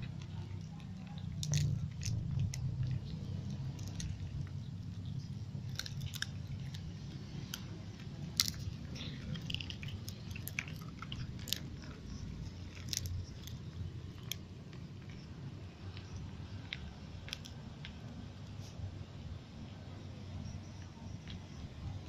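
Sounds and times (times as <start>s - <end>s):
cats crunching crackers: 0.0s - 18.9s
low steady hum: 0.0s - 22.0s.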